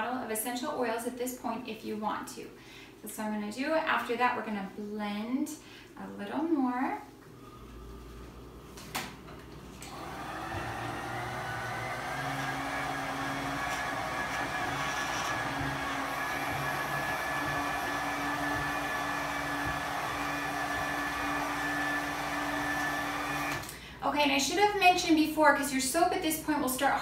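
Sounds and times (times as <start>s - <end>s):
immersion blender humming: 9.8s - 23.7s.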